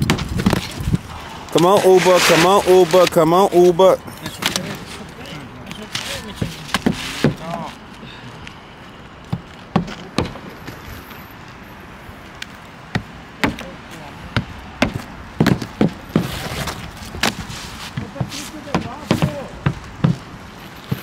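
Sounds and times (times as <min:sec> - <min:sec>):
hammer striking nails: 0:18.2 - 0:20.2.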